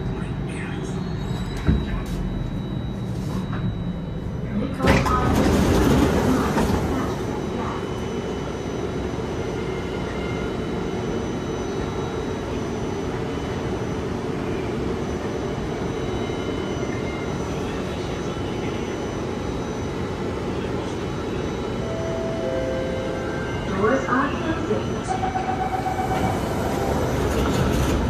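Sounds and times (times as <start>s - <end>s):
train deep rumble: 3.4s - 8.1s, 21.8s - 28.0s.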